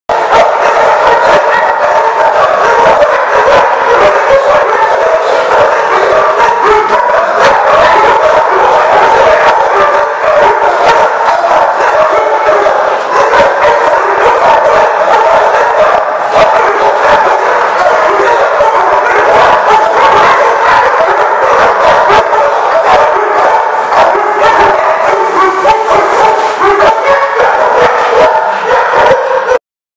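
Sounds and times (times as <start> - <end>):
dogs barking: 0.1 - 29.6.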